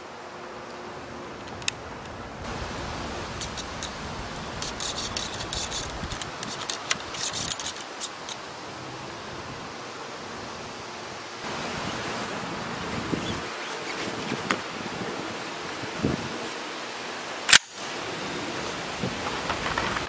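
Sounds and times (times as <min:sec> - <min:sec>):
wind noise: 0:01.5 - 0:08.4, 0:09.2 - 0:16.6, 0:17.9 - 0:20.0
cleaning rod scraping in gun barrel: 0:03.4 - 0:08.4.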